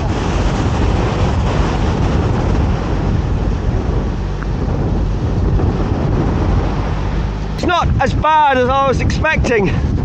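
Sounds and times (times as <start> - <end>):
rough sea breaking against wall: 0.0 - 4.0
strong wind buffeting microphone: 0.0 - 10.0.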